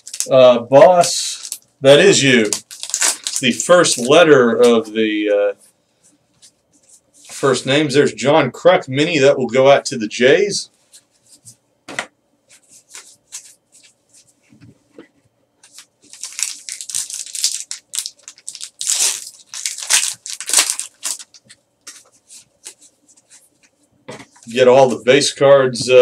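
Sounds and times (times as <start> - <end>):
foil wrapper tearing: 0.0 - 0.4, 1.0 - 4.2, 15.7 - 22.8.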